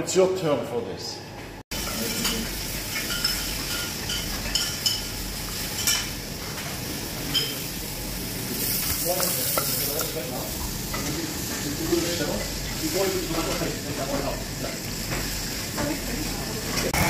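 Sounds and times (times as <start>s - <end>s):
food sizzling in a pan: 1.7s - 17.0s
metal utensils clinking: 1.8s - 6.6s, 7.2s - 7.7s.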